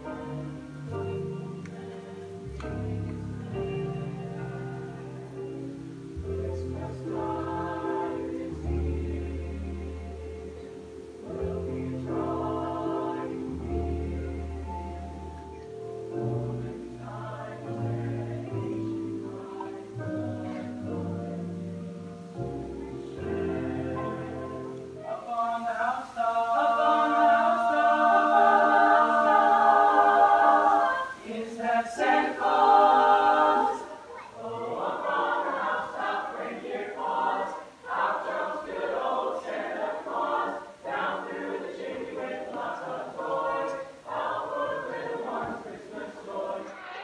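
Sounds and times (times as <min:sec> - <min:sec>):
choir singing a cappella: 0:00.0 - 0:47.0.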